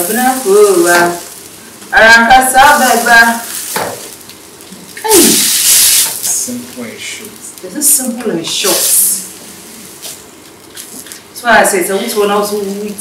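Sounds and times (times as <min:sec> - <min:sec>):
food sizzling in frying pan: 0:00.0 - 0:13.0
person speaking: 0:11.4 - 0:13.0.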